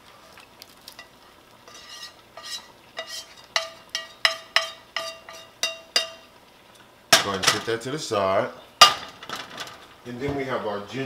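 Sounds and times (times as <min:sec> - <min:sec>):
spatula scraping frying pan: 0:00.9 - 0:06.4
metal cookware knocking: 0:03.6 - 0:06.2, 0:07.2 - 0:07.7, 0:08.8 - 0:10.4.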